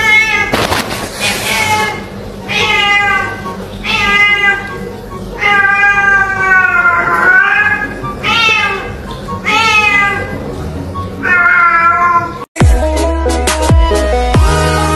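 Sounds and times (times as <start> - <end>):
cat meowing loudly: 0.0 - 0.6, 1.2 - 4.8, 5.4 - 10.4, 11.2 - 12.4.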